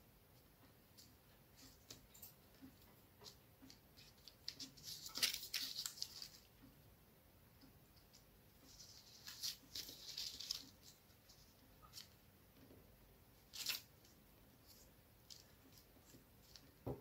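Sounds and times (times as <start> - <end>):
paper rustling: 3.2 - 6.5, 8.1 - 12.2, 13.5 - 16.9.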